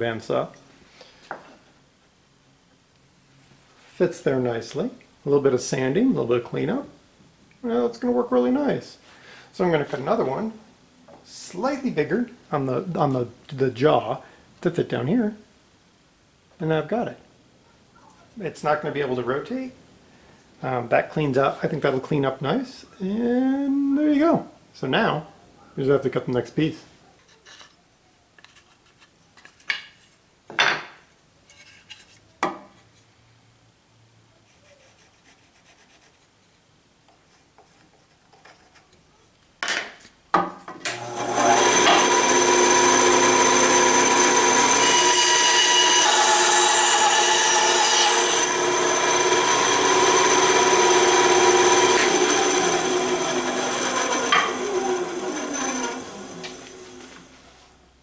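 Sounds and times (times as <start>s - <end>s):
bandsaw cutting wood: 40.9s - 57.4s.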